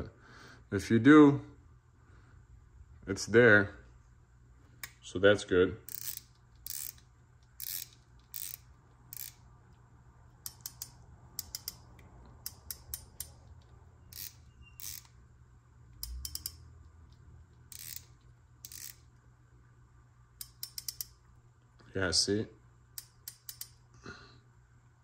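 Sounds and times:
fishing reel drag clicking: 0:05.9 - 0:07.0, 0:07.6 - 0:09.4, 0:14.1 - 0:15.1, 0:17.7 - 0:19.0.

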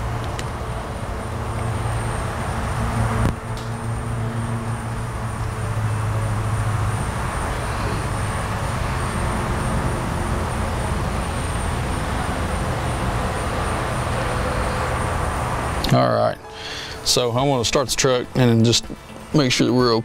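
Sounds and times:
low hum: 0:00.0 - 0:15.8
continuous mechanical hiss: 0:00.0 - 0:20.0
faint high whine: 0:00.0 - 0:20.0.

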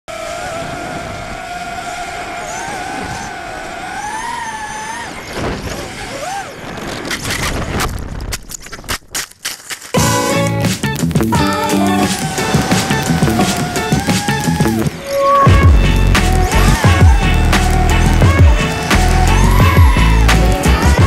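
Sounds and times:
drone motors whining: 0:00.1 - 0:07.2, 0:11.5 - 0:21.0.

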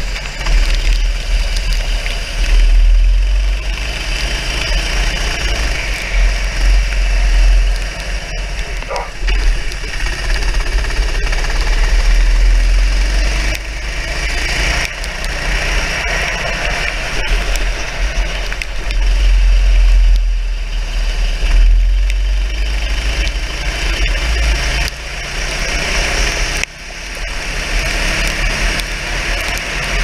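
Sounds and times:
kart engine running: 0:00.0 - 0:30.0.

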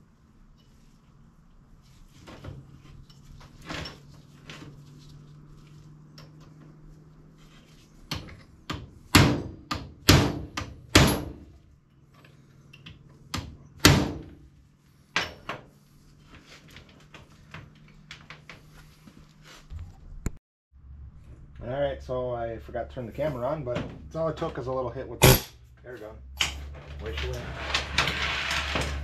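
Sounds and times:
hammer striking metal chain: 0:25.2 - 0:25.6.

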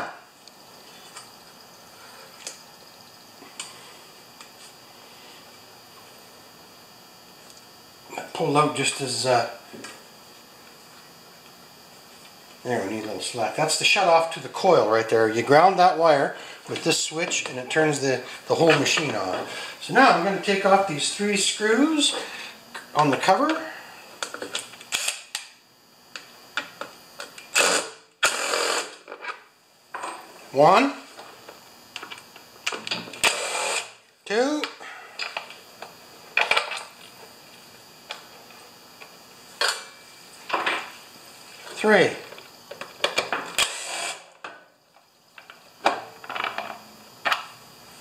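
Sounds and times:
cordless drill running: 0:27.5 - 0:29.0, 0:33.2 - 0:34.0, 0:43.6 - 0:44.4.

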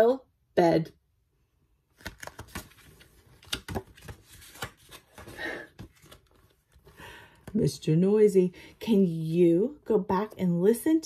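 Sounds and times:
book pages rustling: 0:01.9 - 0:07.6.

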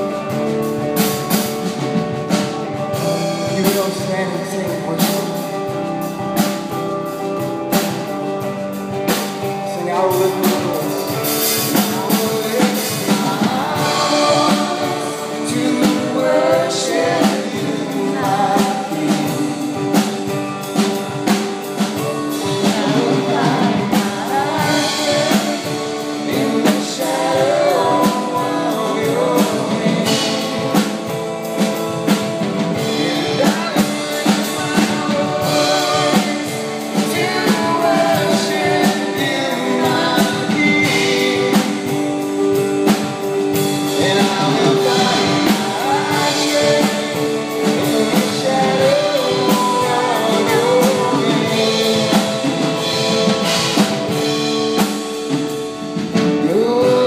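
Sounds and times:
drum kit beat: 0:00.0 - 0:57.0
electric guitar: 0:00.0 - 0:57.0
woman singing into a microphone: 0:11.8 - 0:19.8, 0:22.4 - 0:31.0, 0:32.8 - 0:42.0, 0:43.9 - 0:52.6.

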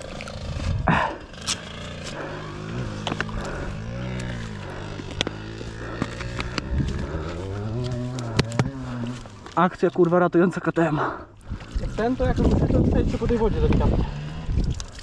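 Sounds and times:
dirt bike engine revving: 0:00.0 - 0:09.4, 0:13.2 - 0:14.6.

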